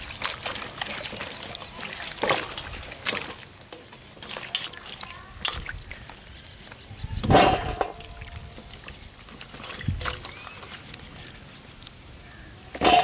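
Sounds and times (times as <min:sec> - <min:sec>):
water dripping: 0:00.0 - 0:13.0
water splashing in a bowl: 0:00.0 - 0:13.0.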